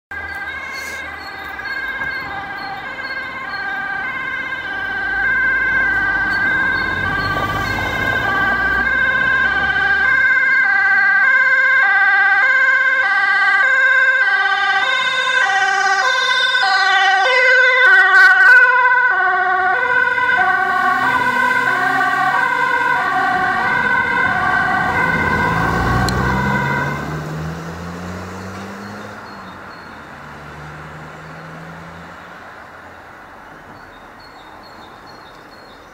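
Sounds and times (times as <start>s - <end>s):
ambulance two-tone siren: 0.1s - 32.0s
vehicle engine speeding up: 0.4s - 10.6s, 19.3s - 32.4s.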